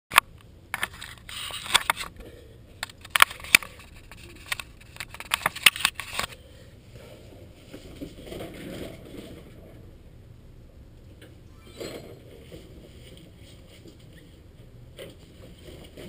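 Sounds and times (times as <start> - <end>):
fingers clicking and scraping camera: 2.8 - 6.4
rustling: 11.7 - 16.0.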